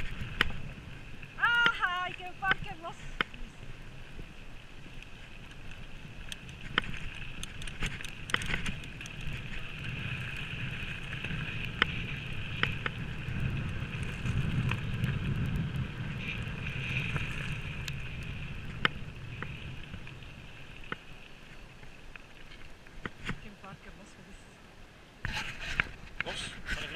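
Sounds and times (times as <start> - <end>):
bike tyres rolling on gravel: 0.0 - 23.8
bike rattling clicks and knocks: 6.2 - 19.5.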